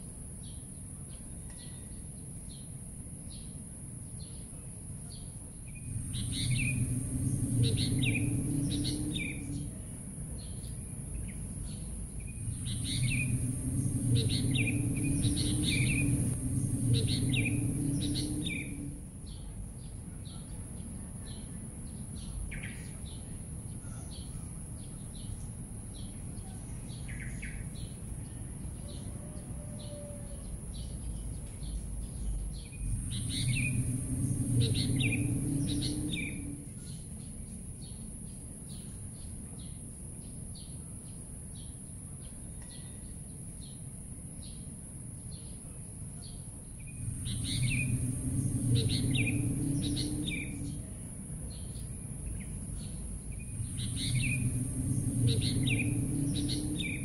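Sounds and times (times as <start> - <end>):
steady high hiss: 4.7 - 23.5, 30.5 - 42.1, 43.3 - 57.0
low steady drone: 5.0 - 39.8, 45.0 - 57.0
birds chirping: 5.1 - 25.4, 29.8 - 38.1, 46.2 - 57.0.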